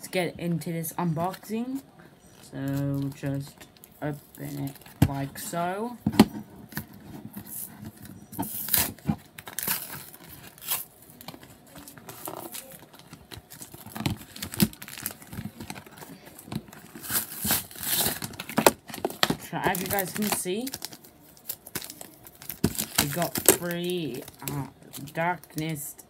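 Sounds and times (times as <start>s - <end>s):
packaging tearing and crinkling: 8.4s - 25.8s.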